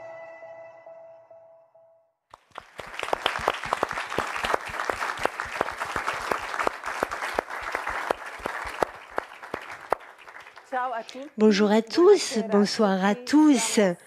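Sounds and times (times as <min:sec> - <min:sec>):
audience applause: 0:02.3 - 0:11.0.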